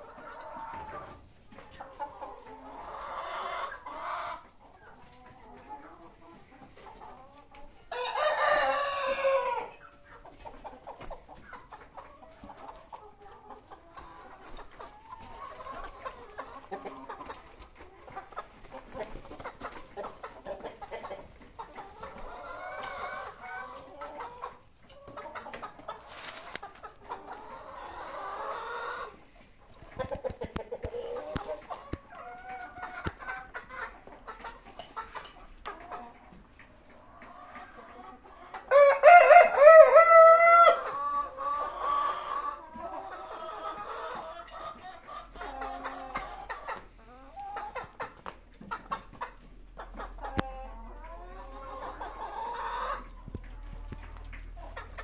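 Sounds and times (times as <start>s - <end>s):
hens clucking: 0.0s - 55.0s
rooster crowing: 8.0s - 9.7s, 38.7s - 40.8s.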